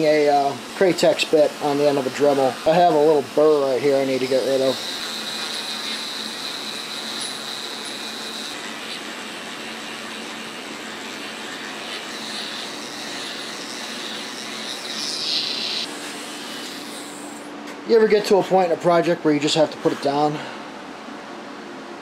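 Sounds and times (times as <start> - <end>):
grinding hiss on steel: 0.0 - 17.5
rotary tool high whine: 0.0 - 21.0.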